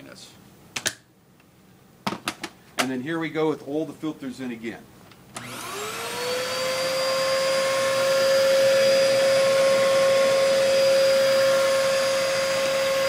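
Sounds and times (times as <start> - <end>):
vacuum cleaner motor whining: 5.4 - 13.0.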